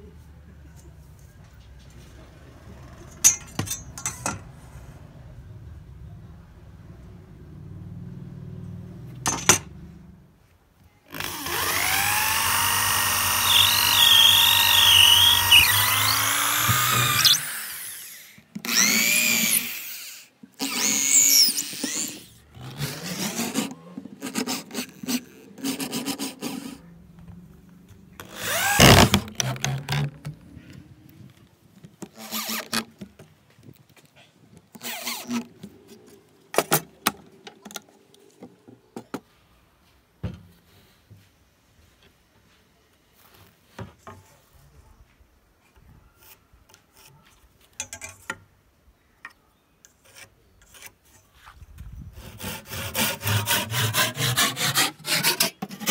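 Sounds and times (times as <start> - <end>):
electric drill boring wood: 11.1 - 23.6, 28.2 - 30.0.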